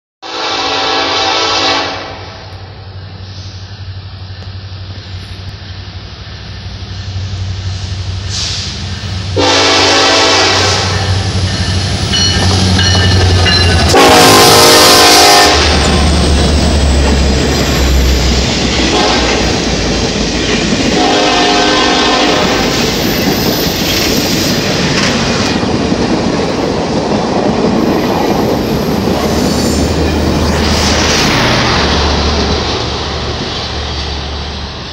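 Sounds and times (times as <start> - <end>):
train air horn blasts: 0.2 - 2.6, 8.3 - 11.3, 13.8 - 16.1, 18.8 - 19.6, 20.9 - 22.8
diesel locomotive engines rumbling: 0.2 - 34.9
train wheels rushing on rail: 0.3 - 34.9.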